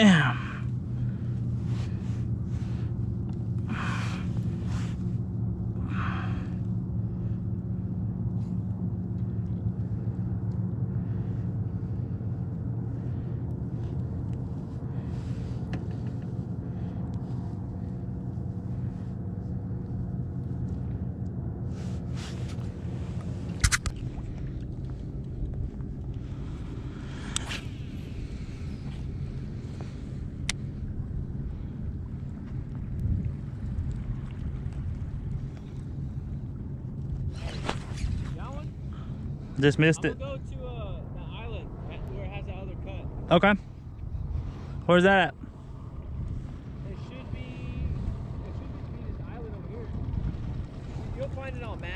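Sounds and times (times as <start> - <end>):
outboard motor idling: 0.0 - 51.9
sharp click: 23.6 - 24.0.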